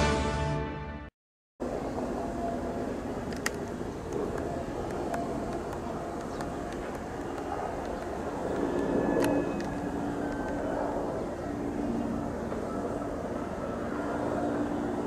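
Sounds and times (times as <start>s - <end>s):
helicopter flying overhead: 1.6s - 15.0s.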